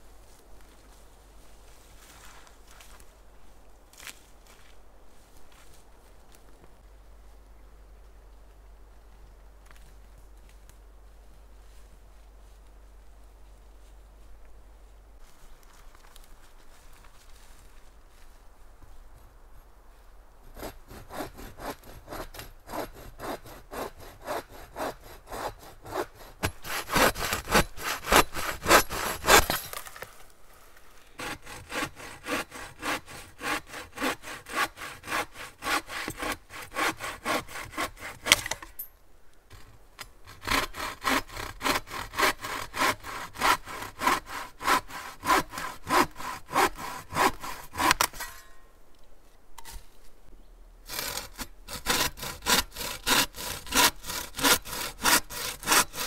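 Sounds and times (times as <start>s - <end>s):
bow saw cutting dry branch: 20.5s - 30.3s, 31.1s - 38.7s, 39.5s - 48.5s, 50.8s - 56.0s.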